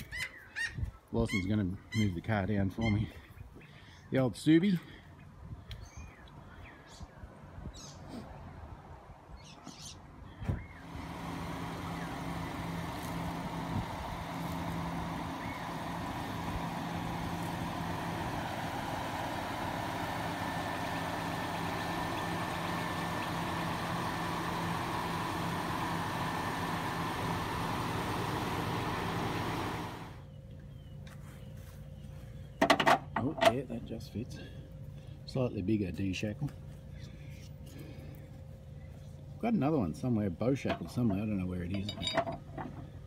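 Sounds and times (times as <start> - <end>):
car engine running at low revs: 10.6 - 32.6.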